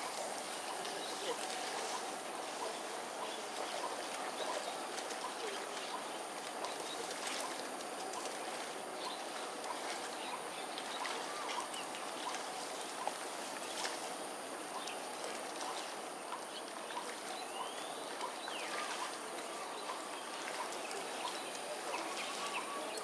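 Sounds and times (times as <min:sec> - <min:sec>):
steady background hiss: 0:00.0 - 0:23.0.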